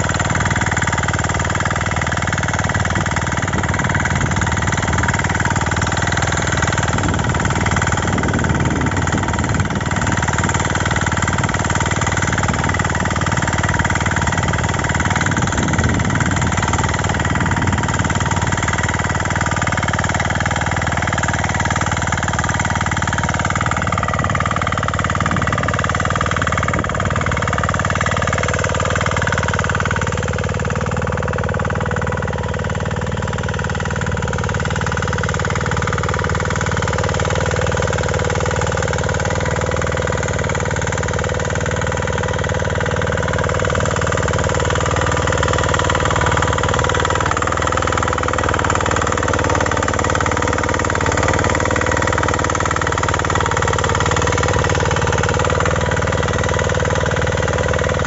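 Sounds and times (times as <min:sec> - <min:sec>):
power weeder engine running: 0:00.0 - 0:58.0.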